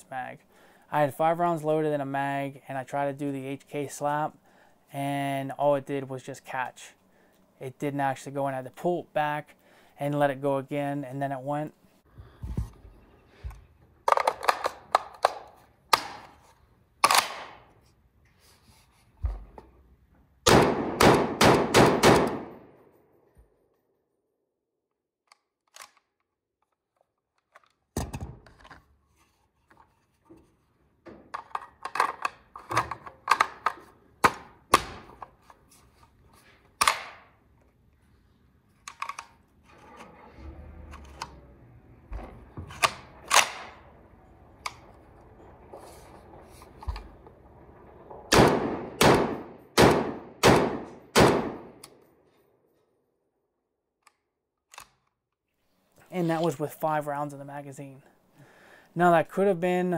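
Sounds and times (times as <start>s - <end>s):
rifle action metallic clacks: 25.3s - 26.3s, 42.7s - 43.8s, 54.0s - 55.2s.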